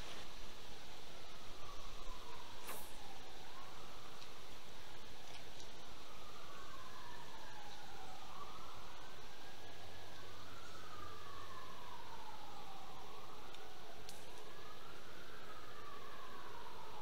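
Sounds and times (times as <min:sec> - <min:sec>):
siren wailing: 0:01.2 - 0:17.0.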